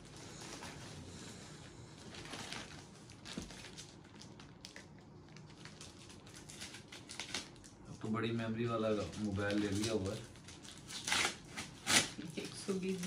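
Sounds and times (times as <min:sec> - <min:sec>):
packaging rustling and ripping: 0:02.0 - 0:07.8, 0:08.8 - 0:13.0.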